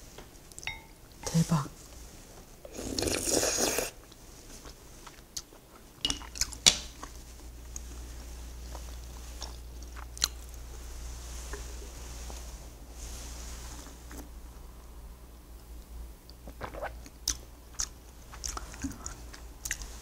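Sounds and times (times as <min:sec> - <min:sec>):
quiet chewing: 0:02.4 - 0:10.8, 0:15.6 - 0:20.0
loud slurp: 0:02.7 - 0:04.0.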